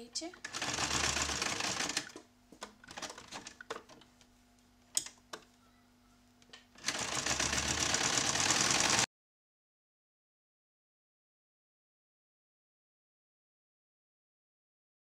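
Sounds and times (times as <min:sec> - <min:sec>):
sewing machine stitching: 0:00.4 - 0:02.2, 0:06.8 - 0:09.1.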